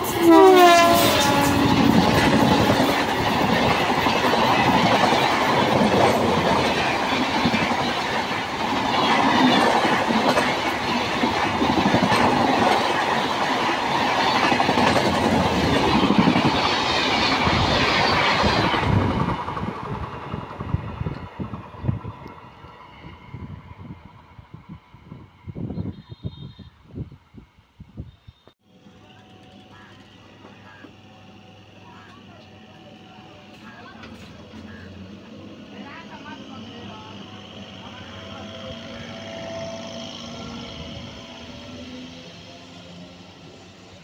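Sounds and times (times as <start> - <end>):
train coaches rushing past: 0.0 - 25.5, 28.7 - 44.0.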